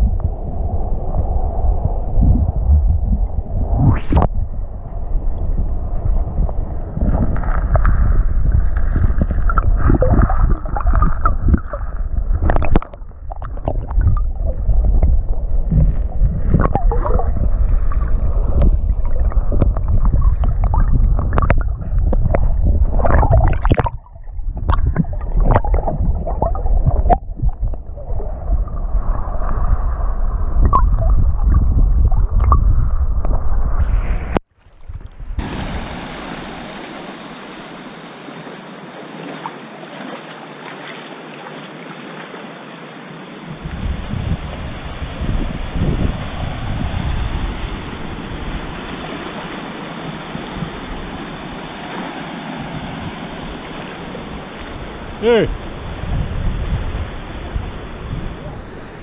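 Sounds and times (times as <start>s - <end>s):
wind and surf hiss: 0.0s - 27.0s, 28.0s - 30.7s, 35.0s - 59.0s
muffled underwater surf rumble: 0.0s - 37.9s, 43.5s - 59.0s
underwater clicks and knocks: 6.4s - 8.0s, 8.7s - 17.4s, 18.5s - 27.8s.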